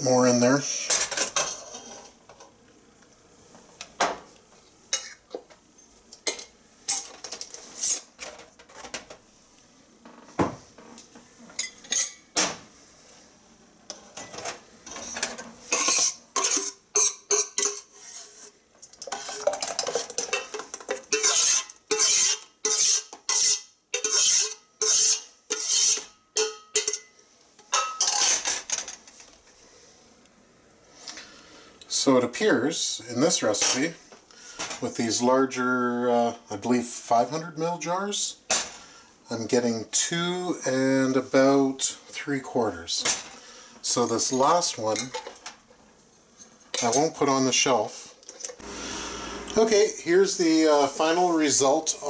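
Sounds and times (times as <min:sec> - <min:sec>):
metal ladle scraping a steel pot: 0:01.4 - 0:02.2, 0:14.9 - 0:27.0.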